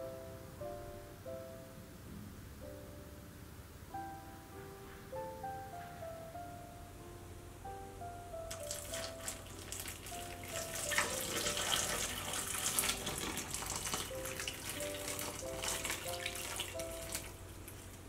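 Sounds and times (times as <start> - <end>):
soft background music: 0.0 - 18.0
hot water pouring into bowl: 8.6 - 17.4.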